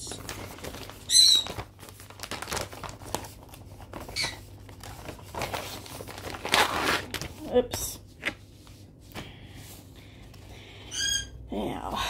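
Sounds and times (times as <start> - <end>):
fabric crinkling and rustling: 0.0 - 7.6.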